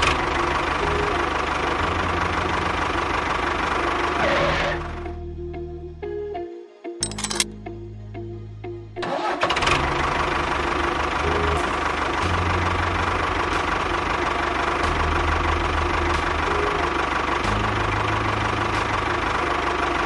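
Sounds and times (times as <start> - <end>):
tractor engine chugging: 10.0 - 20.0.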